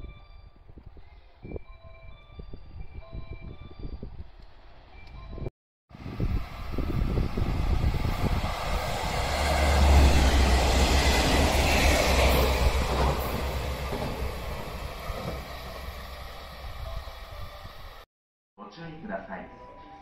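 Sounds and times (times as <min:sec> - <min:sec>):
diesel train passing: 0:06.0 - 0:18.0.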